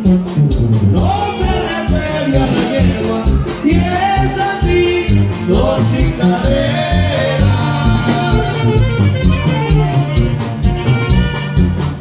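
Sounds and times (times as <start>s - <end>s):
dance band music: 0.0s - 12.0s
person singing: 1.0s - 9.1s.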